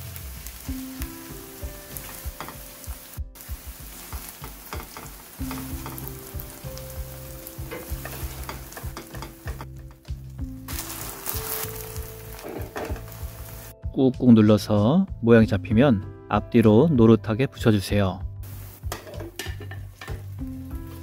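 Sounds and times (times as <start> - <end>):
batter sizzling in oil: 0.0 - 13.8, 18.4 - 21.0
tongs and spatula scraping: 10.7 - 13.4.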